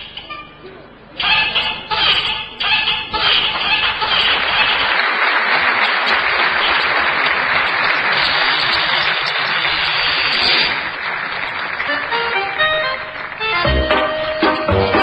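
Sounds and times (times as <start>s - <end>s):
audience applauding: 3.3s - 15.0s.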